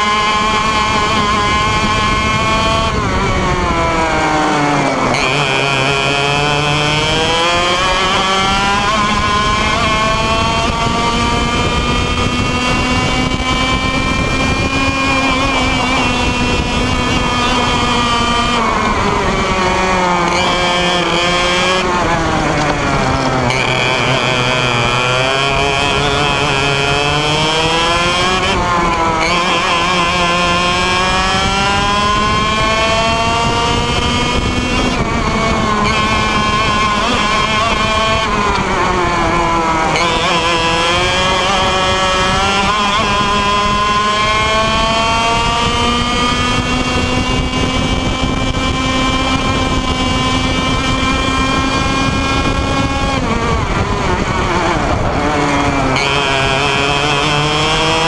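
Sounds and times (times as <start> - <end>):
kart engine revving: 0.0 - 58.0.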